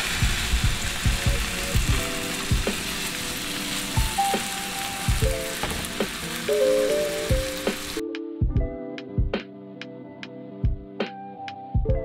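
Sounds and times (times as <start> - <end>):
steaks sizzling in frying pan: 0.0 - 8.0
background music with simple melody: 0.1 - 12.0.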